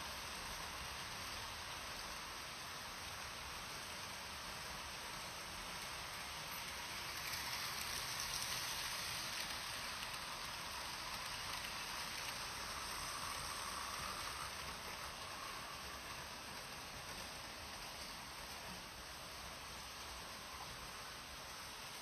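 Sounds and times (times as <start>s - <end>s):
model trains rattling on metal track: 0.0s - 22.0s.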